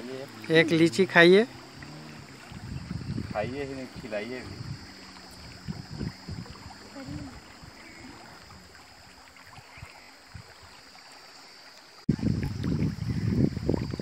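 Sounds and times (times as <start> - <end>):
steady high hiss: 0.0 - 12.1
wind rumbling on microphone: 0.3 - 10.9, 12.1 - 14.0.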